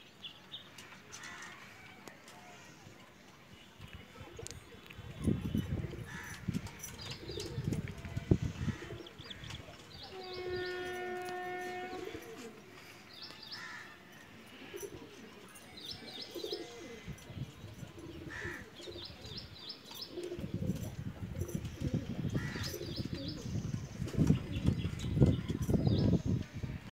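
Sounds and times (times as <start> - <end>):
pigeons cooing: 5.8 - 9.6, 10.2 - 13.0, 14.3 - 24.9.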